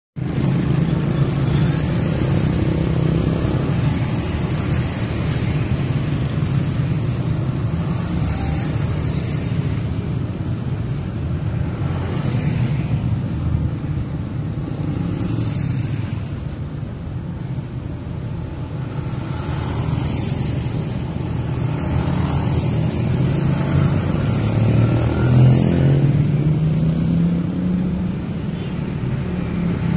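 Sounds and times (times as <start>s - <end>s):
motorcycles and scooters passing: 0.2s - 29.9s.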